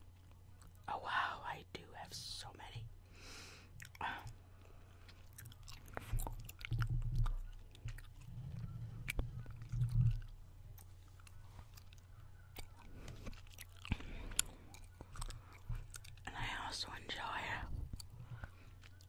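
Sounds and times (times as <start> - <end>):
gum chewing smacks: 3.7 - 16.7, 17.5 - 19.0.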